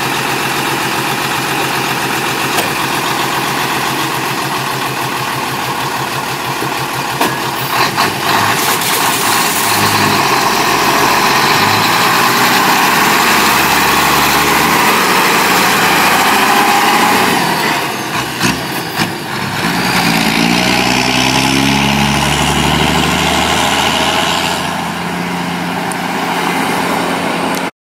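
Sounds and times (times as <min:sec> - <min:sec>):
diesel truck engine under load: 0:00.0 - 0:27.7.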